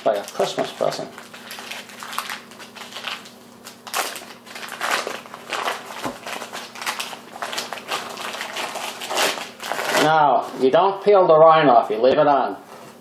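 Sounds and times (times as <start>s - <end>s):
paper wrapper crinkling: 0.0s - 10.2s.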